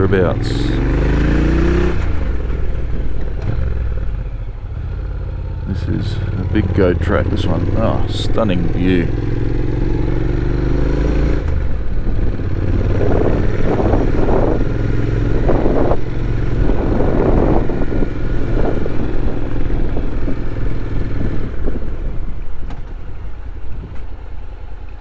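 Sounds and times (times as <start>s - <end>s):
motorcycle engine running: 0.0s - 25.0s
wind rushing over microphone: 6.6s - 24.4s.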